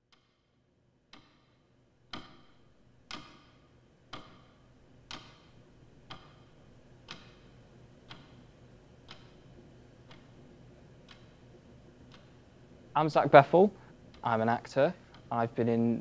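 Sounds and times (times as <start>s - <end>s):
clock ticking: 1.1s - 10.4s, 11.0s - 12.4s, 14.1s - 15.8s.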